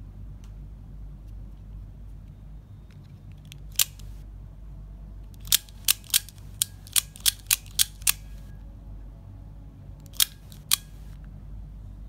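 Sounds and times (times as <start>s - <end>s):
automatic knife blade snapping: 5.4s - 8.4s, 10.1s - 11.0s.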